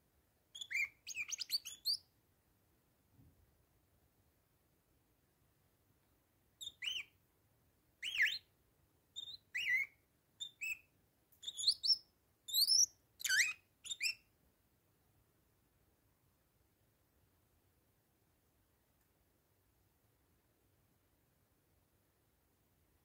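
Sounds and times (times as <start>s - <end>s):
parakeet chirping whistles: 0.6s - 2.0s, 6.6s - 7.1s, 8.0s - 8.5s, 9.2s - 14.2s.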